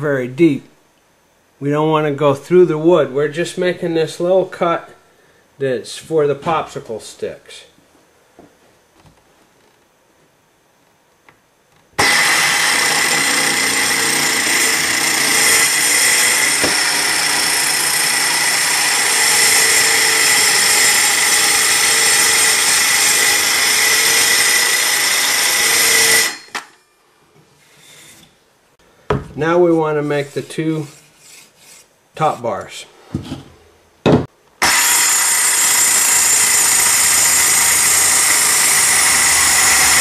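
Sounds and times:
circular saw cutting wood: 12.0 - 26.8, 29.6 - 32.5, 34.6 - 40.0.

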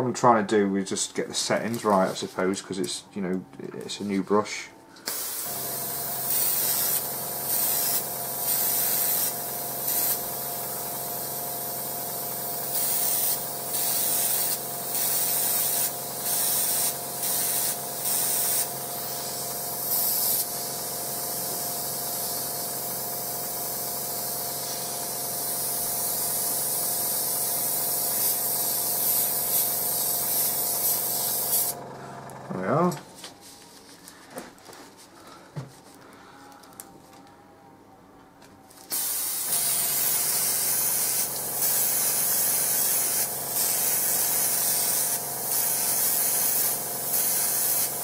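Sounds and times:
airbrush spraying hiss: 5.1 - 31.8, 38.9 - 48.0.

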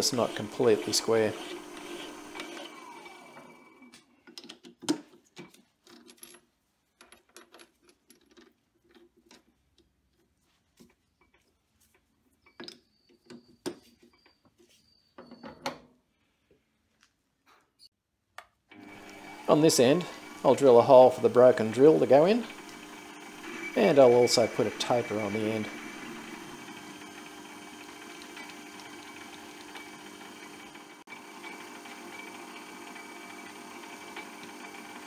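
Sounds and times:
metal lathe winding down: 0.0 - 3.5, 18.7 - 35.0.

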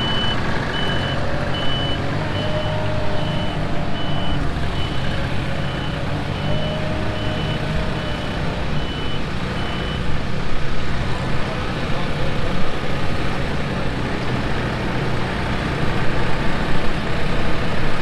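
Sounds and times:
reversing alarm beeping: 0.0 - 10.0
loader engine running: 0.0 - 18.0.

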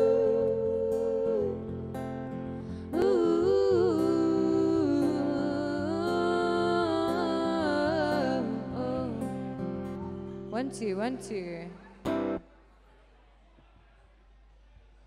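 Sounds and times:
wordless singing: 0.0 - 2.0, 2.9 - 9.4
guitar chords: 0.0 - 12.4.

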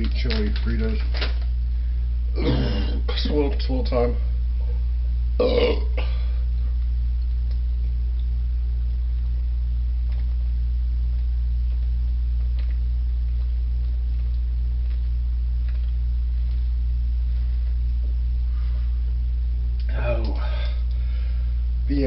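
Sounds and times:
low electrical hum: 0.0 - 22.0
man gulping from a bottle: 2.4 - 3.2, 5.4 - 6.3.

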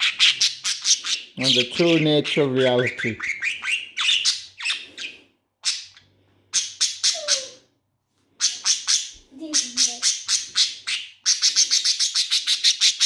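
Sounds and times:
budgerigar chattering: 0.0 - 7.6, 8.4 - 13.0.

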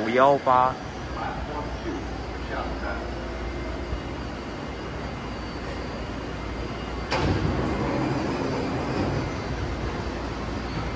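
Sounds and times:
electric train humming: 0.0 - 10.9
doors sliding open: 5.4 - 10.9.

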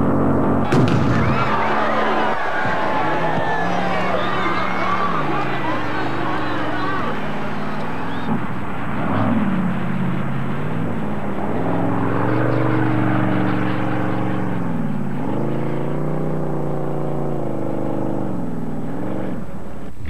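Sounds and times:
boat engine revving: 0.0 - 8.4.

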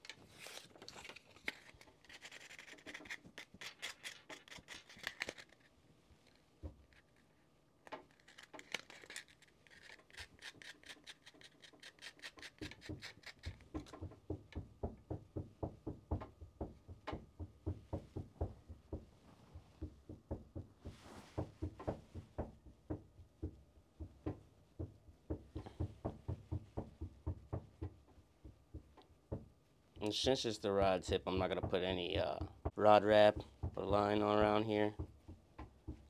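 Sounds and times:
sandpaper rubbing: 8.9 - 13.6.

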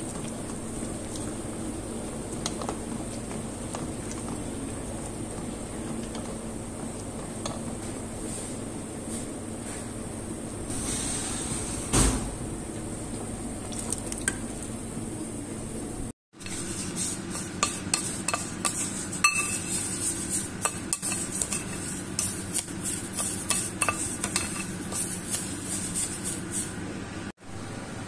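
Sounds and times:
low kitchen hum: 0.0 - 28.0
spoon stirring grains in a bowl: 16.4 - 26.8.

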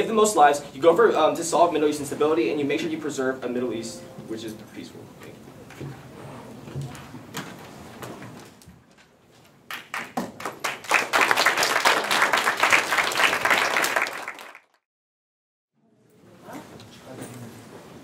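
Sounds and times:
audience applauding: 9.7 - 14.8.

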